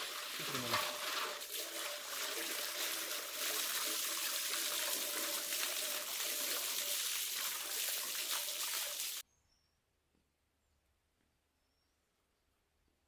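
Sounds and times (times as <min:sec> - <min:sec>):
hose water spraying: 0:00.0 - 0:09.2.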